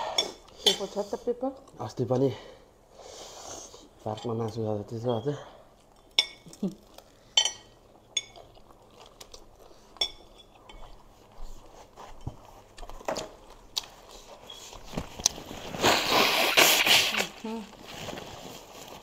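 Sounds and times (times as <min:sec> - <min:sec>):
biting and chewing: 0:07.9 - 0:11.4.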